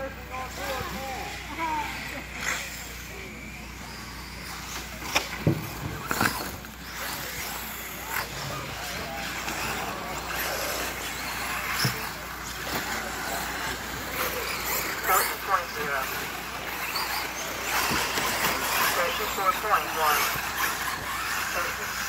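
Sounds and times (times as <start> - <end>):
rc car motors and tyres: 0.0 - 22.0.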